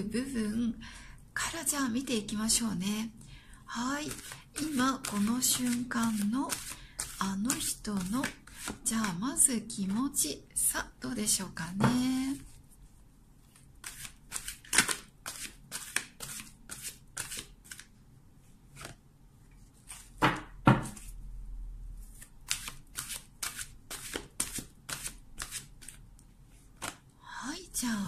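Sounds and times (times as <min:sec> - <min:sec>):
cards being shuffled: 0:13.5 - 0:17.9, 0:22.1 - 0:26.0, 0:26.7 - 0:27.0.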